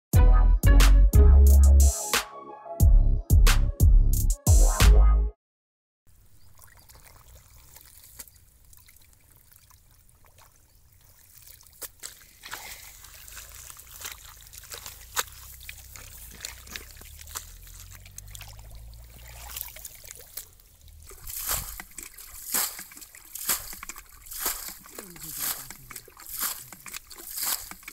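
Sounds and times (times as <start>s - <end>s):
water splashing and trickling: 6.1s - 27.9s
wet mud squelching: 6.6s - 27.9s.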